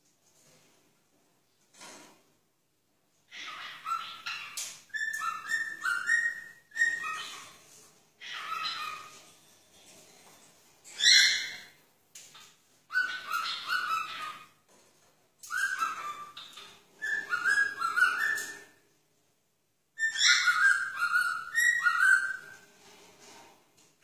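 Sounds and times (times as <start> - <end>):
cockatiel whistling: 3.4 - 7.5, 15.5 - 18.7, 20.0 - 22.6.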